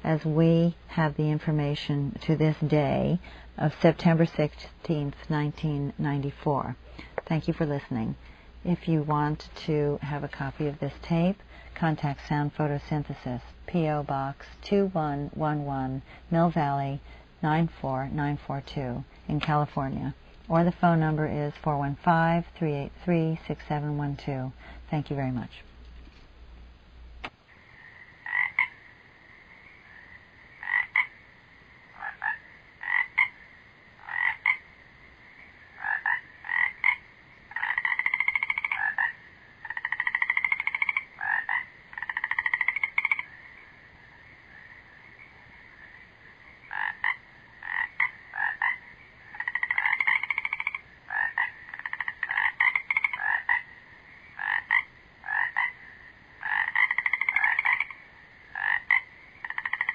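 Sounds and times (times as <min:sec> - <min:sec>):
steady high hum: 0:00.0 - 0:56.8
frogs croaking and trilling: 0:27.4 - 0:59.9.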